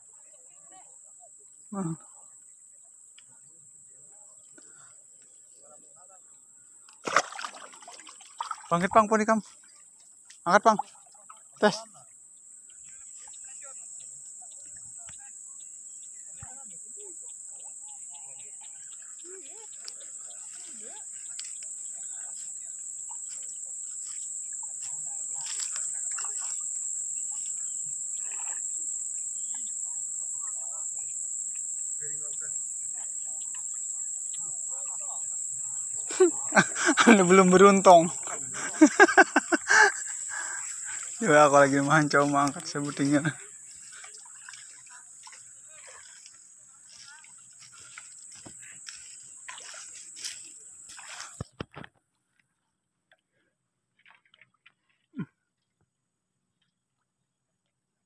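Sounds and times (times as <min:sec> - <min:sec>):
high-pitched insect chorus: 0:00.0 - 0:51.5
water squishing and sloshing: 0:07.0 - 0:09.6, 0:42.3 - 0:51.4
steady high hiss: 0:33.7 - 0:43.4
faint distant voices: 0:40.2 - 0:51.4.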